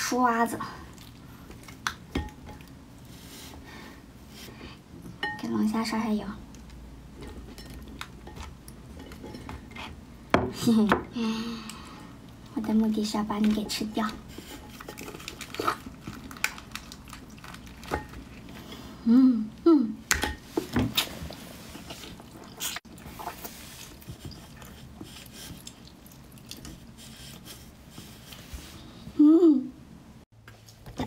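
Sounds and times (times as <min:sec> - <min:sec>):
person chewing: 0:14.6 - 0:18.6, 0:21.0 - 0:27.5.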